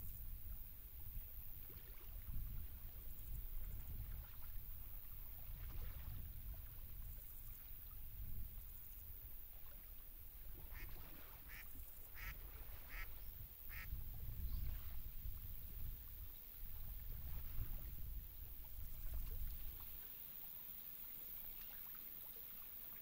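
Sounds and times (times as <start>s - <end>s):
duck quacking: 12.2s - 13.1s, 13.7s - 13.9s.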